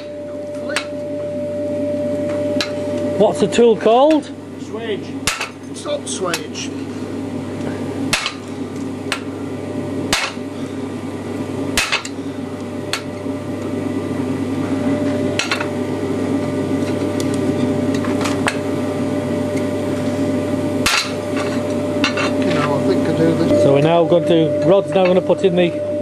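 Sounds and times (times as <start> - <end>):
steady hum: 0.0 - 26.0
hammer striking metal: 5.2 - 5.6, 8.1 - 8.4, 10.1 - 10.4, 11.8 - 12.2, 20.8 - 22.3.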